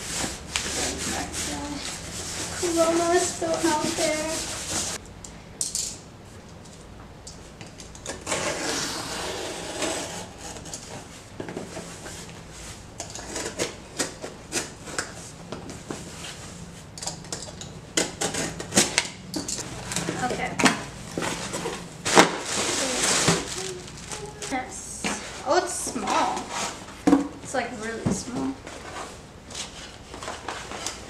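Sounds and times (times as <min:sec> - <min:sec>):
rubbing and scraping on cardboard: 0:00.0 - 0:05.0, 0:08.3 - 0:12.8, 0:21.2 - 0:24.4, 0:25.1 - 0:26.9
packing tape scratching: 0:07.9 - 0:11.1, 0:18.0 - 0:24.6.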